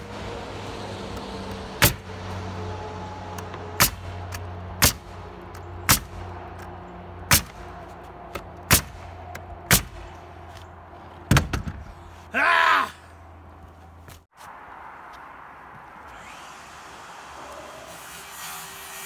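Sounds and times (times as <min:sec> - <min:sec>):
pneumatic nailer shots: 0:03.8 - 0:04.1, 0:04.8 - 0:05.1
man shouting: 0:12.3 - 0:13.2.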